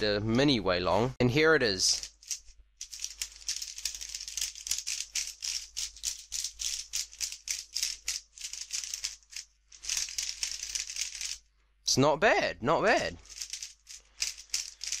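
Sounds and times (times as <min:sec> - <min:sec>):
speed cube plastic clicks: 0:02.8 - 0:09.2.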